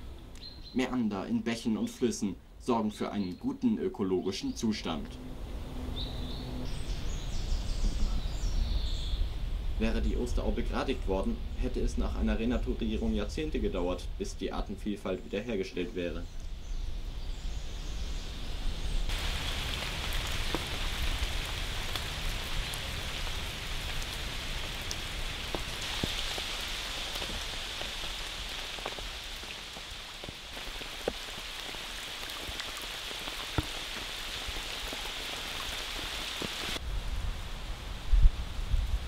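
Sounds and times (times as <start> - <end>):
rain hissing on river: 19.0 - 39.0.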